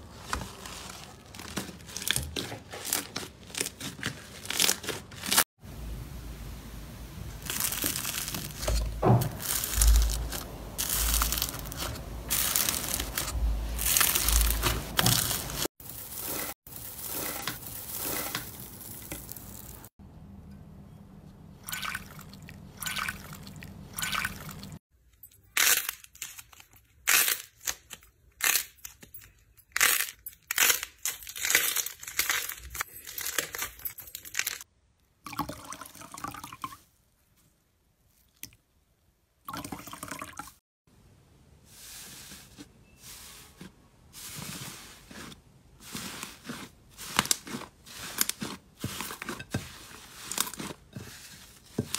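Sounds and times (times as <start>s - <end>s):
foil crinkling: 0.0s - 5.5s, 7.4s - 19.9s, 29.8s - 34.6s, 44.2s - 51.9s
slime squishing: 44.3s - 51.9s.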